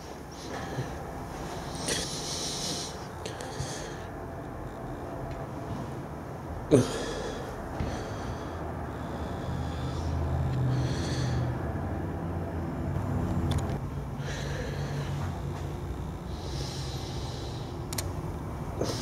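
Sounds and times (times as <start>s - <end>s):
person breathing closely: 0.0s - 4.4s, 6.7s - 12.1s, 13.9s - 17.9s, 18.7s - 19.0s.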